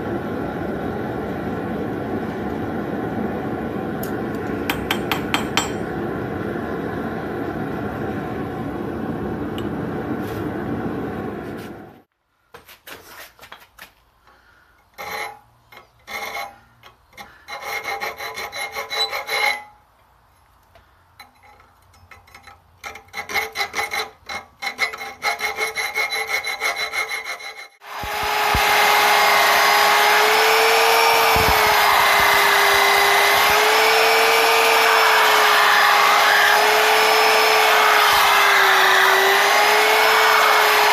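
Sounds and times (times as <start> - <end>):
hand file rasping on steel: 15.0 - 19.8, 21.2 - 27.8
belt sander whining: 27.8 - 40.9.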